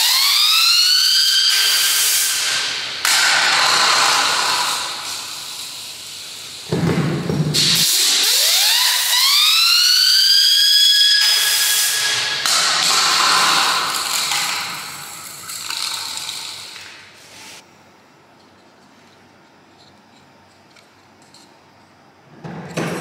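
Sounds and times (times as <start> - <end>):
spinning toy whistling whine: 8.1 - 12.4.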